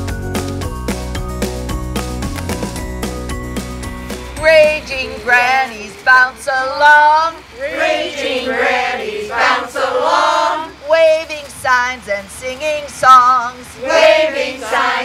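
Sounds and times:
women singing together: 0:04.4 - 0:15.0.

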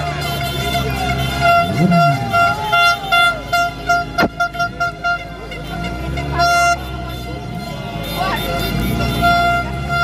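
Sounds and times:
car horn honking: 0:00.0 - 0:10.0
people shouting: 0:00.8 - 0:03.6.

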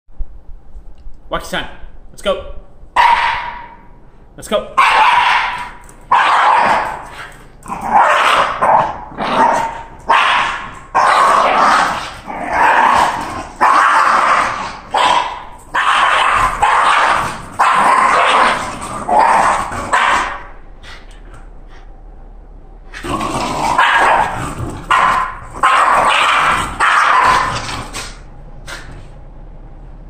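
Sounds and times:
dogs barking and growling: 0:03.0 - 0:03.9, 0:04.8 - 0:21.5, 0:22.9 - 0:29.1.

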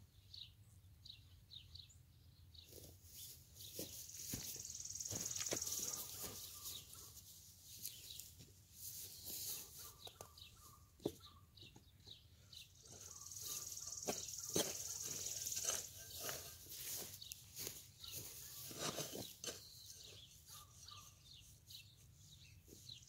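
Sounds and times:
birds chirping: 0:00.0 - 0:23.0
high buzzing bird trill: 0:03.2 - 0:07.2, 0:12.7 - 0:23.0.

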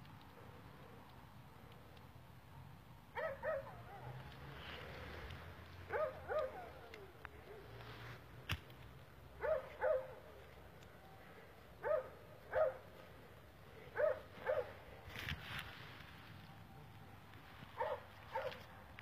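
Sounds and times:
dog barking: 0:03.2 - 0:04.2, 0:05.9 - 0:06.8, 0:09.4 - 0:10.2, 0:11.8 - 0:12.9, 0:13.9 - 0:14.8, 0:17.8 - 0:18.7.

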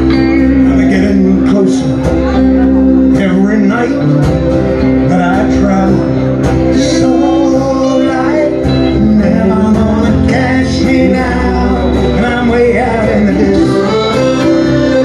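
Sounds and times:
acoustic guitar strumming: 0:00.0 - 0:15.0
electric guitar: 0:00.0 - 0:15.0
man singing: 0:00.0 - 0:15.0
accordion: 0:06.0 - 0:15.0.

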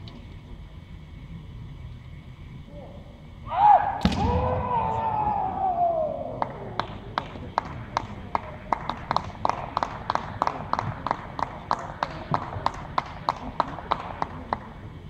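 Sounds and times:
person shouting: 0:03.5 - 0:06.4.

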